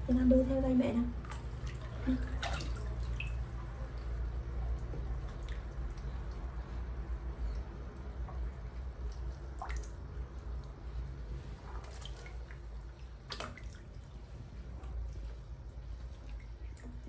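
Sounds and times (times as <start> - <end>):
water lapping in plastic tub: 0.0 - 17.0
plinking water drips: 1.2 - 11.0.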